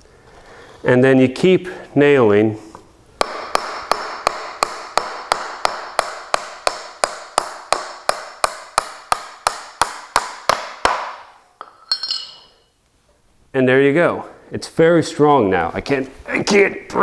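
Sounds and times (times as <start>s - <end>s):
hammer striking nail into wood: 3.2s - 11.3s.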